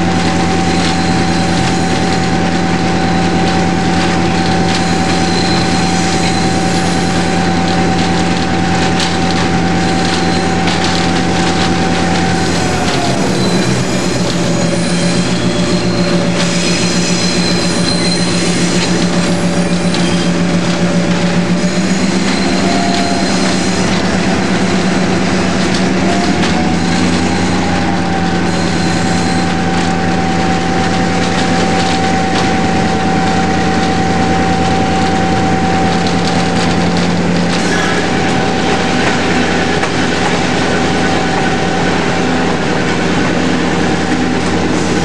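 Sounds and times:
diesel locomotive engine running: 0:00.0 - 0:45.0
train wheel squeal: 0:00.0 - 0:45.0.

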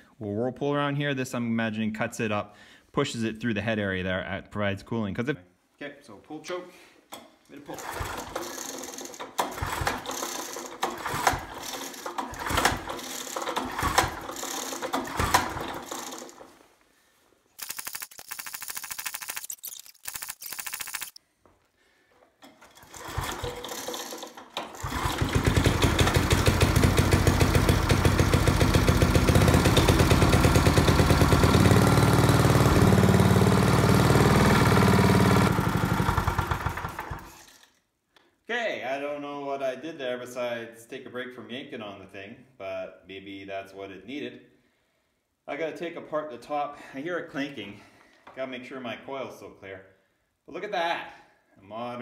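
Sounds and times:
recoil pull starter rattling: 0:07.8 - 0:16.4, 0:22.6 - 0:33.5
single-cylinder engine running: 0:07.8 - 0:16.4, 0:22.8 - 0:37.3.

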